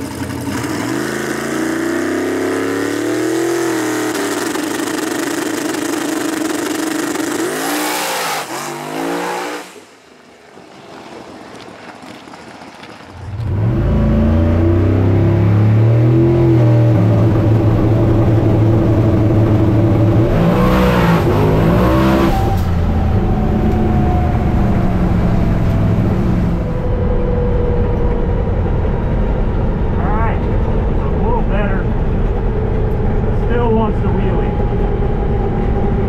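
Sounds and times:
drag car engine accelerating: 0:00.0 - 0:09.8, 0:13.2 - 0:36.0.

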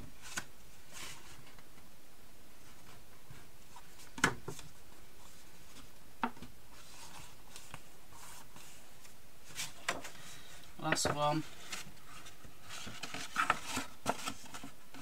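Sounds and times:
card rustling and rubbing: 0:06.7 - 0:10.4, 0:11.4 - 0:15.0.

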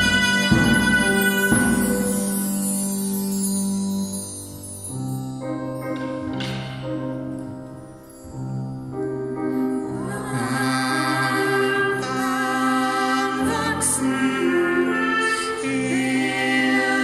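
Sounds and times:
people singing: 0:00.0 - 0:02.4, 0:09.9 - 0:17.0
brass wind and percussion ensemble: 0:00.0 - 0:03.1.

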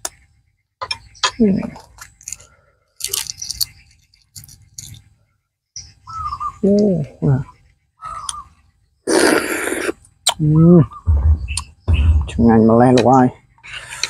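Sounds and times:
eggshell cracking: 0:02.2 - 0:03.7.

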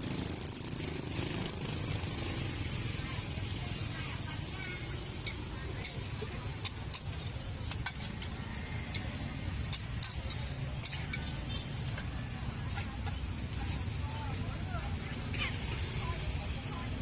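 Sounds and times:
light sizzle: 0:01.8 - 0:16.8
metal spatula scraping a wok: 0:05.0 - 0:14.0.

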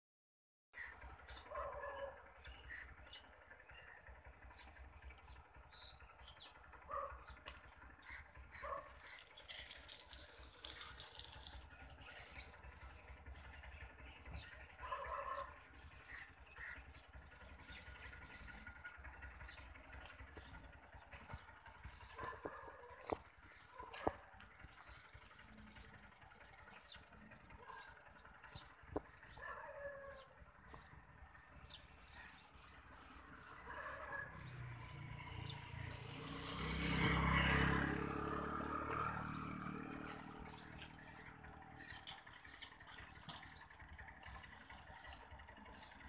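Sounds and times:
birds chirping: 0:00.8 - 0:46.0.

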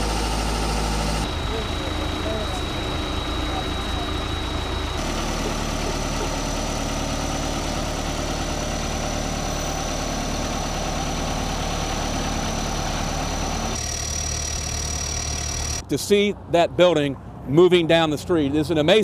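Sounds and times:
heavy engine idling: 0:00.0 - 0:15.8.

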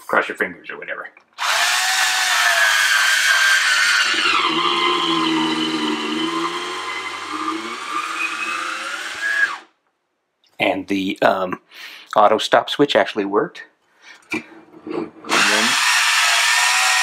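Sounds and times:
electric wine opener motor whining: 0:01.4 - 0:09.7, 0:15.3 - 0:17.0.

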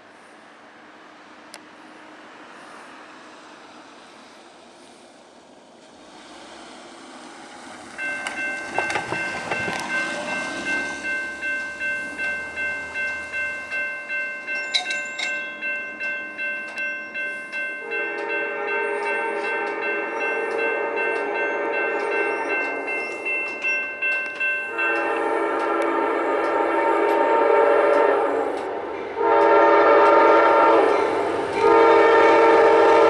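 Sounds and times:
crossing warning bell ringing: 0:07.8 - 0:33.0
locomotive air horn: 0:17.8 - 0:22.6, 0:24.7 - 0:33.0.

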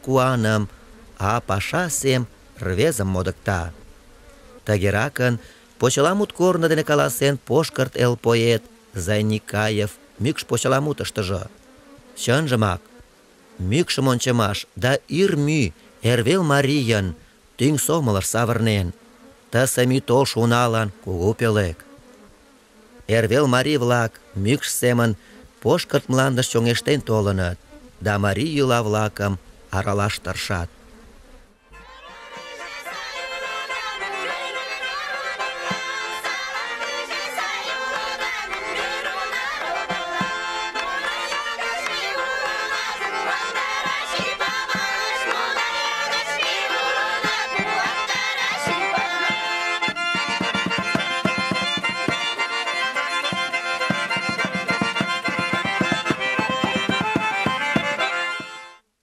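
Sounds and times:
folk instrumental music: 0:31.6 - 0:59.0.

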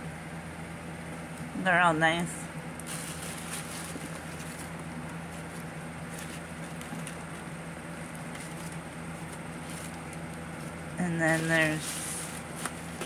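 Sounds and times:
low background hum: 0:00.0 - 0:13.0
laminated cards rustling: 0:02.8 - 0:13.0.

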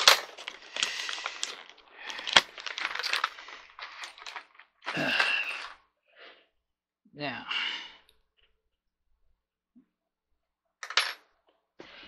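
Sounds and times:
hardware packet crinkling: 0:00.0 - 0:05.8
small metal parts clinking: 0:00.0 - 0:05.8.

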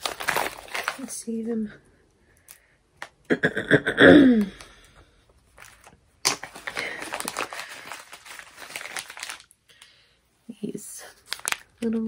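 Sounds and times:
packaging rustling: 0:00.0 - 0:01.2, 0:05.4 - 0:09.9, 0:11.2 - 0:12.0
person sighing: 0:03.8 - 0:05.0.

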